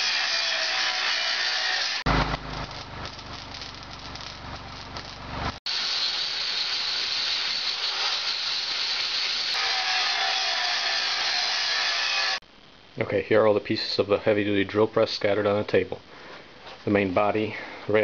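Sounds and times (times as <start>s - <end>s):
angle grinder grinding steel: 0.0s - 12.4s
arc welder crackling and buzzing: 0.0s - 13.0s.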